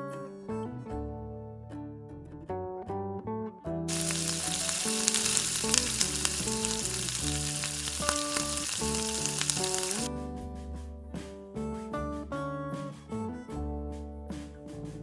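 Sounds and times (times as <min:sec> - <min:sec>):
acoustic guitar music: 0:03.9 - 0:10.0
dough balls sizzling in oil: 0:03.9 - 0:10.1.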